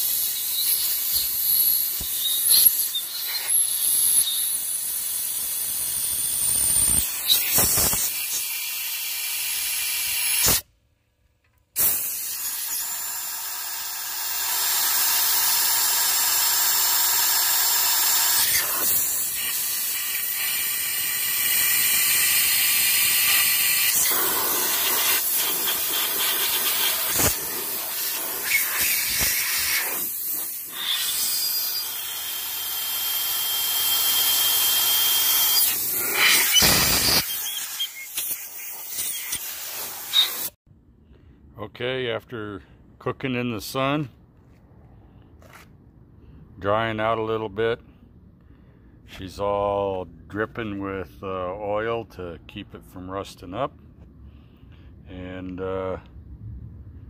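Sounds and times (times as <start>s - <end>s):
compressed air blow gun hissing: 4.8s - 10.6s, 11.8s - 40.6s.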